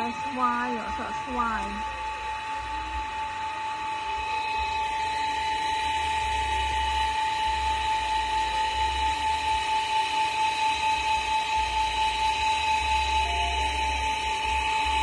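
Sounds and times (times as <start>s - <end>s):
insects droning: 0.0s - 4.6s.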